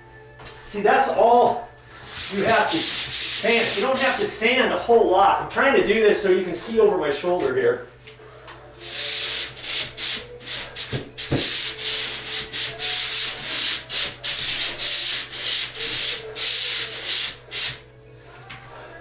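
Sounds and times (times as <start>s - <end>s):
pole sander rasping on ceiling: 2.0s - 4.2s, 8.8s - 17.8s.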